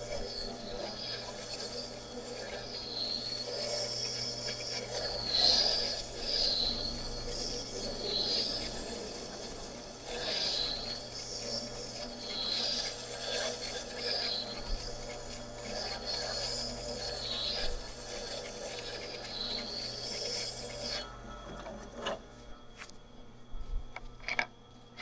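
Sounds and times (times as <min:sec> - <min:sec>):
gouge rasping on grinding wheel: 0:00.0 - 0:22.2
grinder motor hum: 0:00.0 - 0:25.0.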